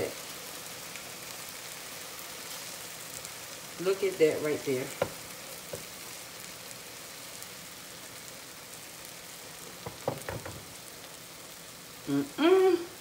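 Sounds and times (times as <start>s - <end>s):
meat and cheese sizzling on griddle: 0.0s - 13.0s
spatula knocking on griddle: 4.9s - 6.0s, 9.8s - 10.8s.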